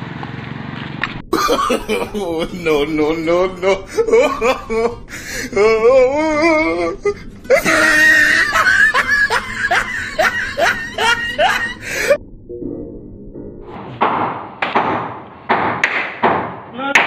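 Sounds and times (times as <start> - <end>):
person laughing: 1.3 - 12.2.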